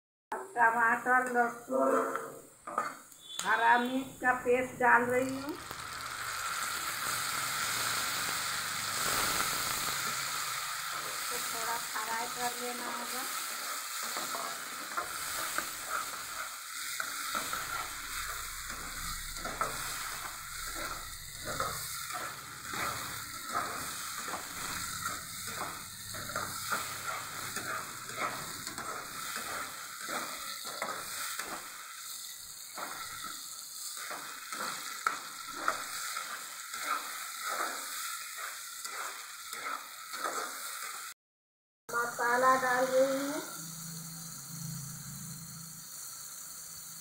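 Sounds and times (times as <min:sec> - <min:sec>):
paste sizzling in oil: 0:00.6 - 0:41.2, 0:41.9 - 0:47.0
spatula scraping: 0:10.9 - 0:41.0.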